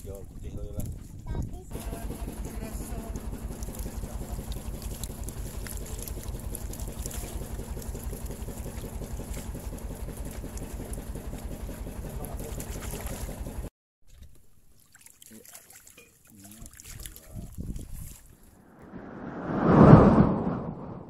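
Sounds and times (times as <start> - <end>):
small boat engine running: 1.4 - 13.7.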